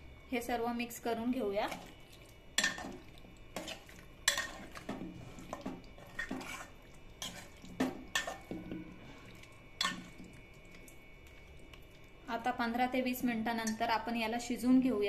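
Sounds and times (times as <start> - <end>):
hands squishing wet marinade: 8.8 - 12.3.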